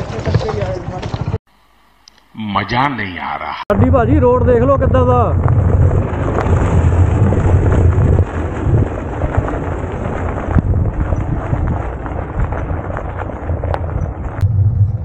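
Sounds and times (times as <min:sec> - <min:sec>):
wind buffeting microphone: 0:03.7 - 0:15.0
bicycle tyres on gravel: 0:05.3 - 0:15.0.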